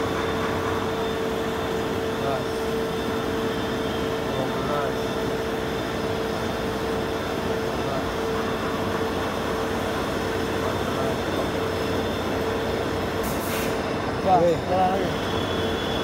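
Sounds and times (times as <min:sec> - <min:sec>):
constant machine tone: 0:00.0 - 0:16.0
lathe machining with coolant: 0:00.0 - 0:16.0
brief hiss: 0:13.2 - 0:13.8.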